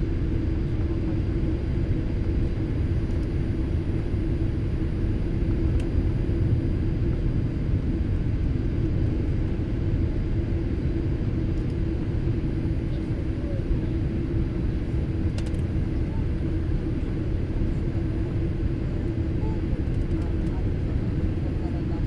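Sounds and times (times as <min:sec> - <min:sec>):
airliner engines and airflow rumble: 0:00.0 - 0:22.0
constant cabin hum: 0:00.0 - 0:22.0.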